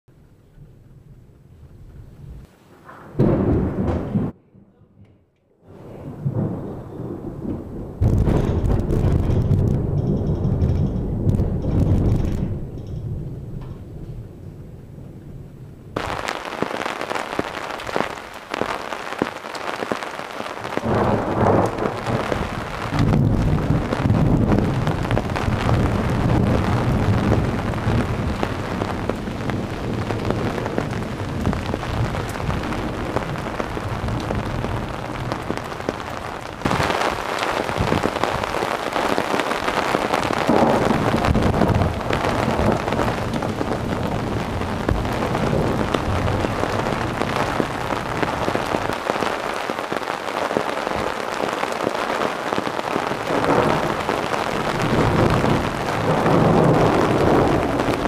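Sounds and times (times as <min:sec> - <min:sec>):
thunder rolling: 0:00.5 - 0:04.7, 0:05.7 - 0:58.0
heavy rain pouring: 0:05.7 - 0:58.0.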